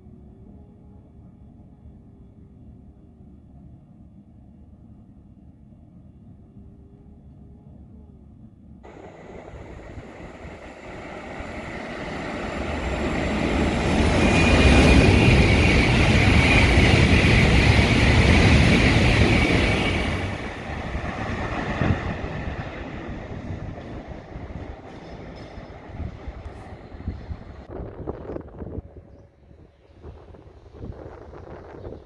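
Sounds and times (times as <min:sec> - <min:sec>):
steady high whine: 0:06.5 - 0:32.0
high-speed train passing: 0:08.8 - 0:32.0.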